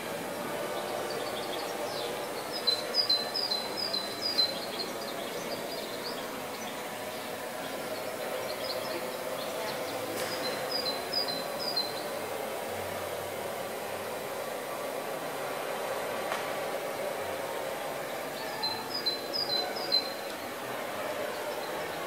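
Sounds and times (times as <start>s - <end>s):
exhibition hall hum and hiss: 0.0s - 22.0s.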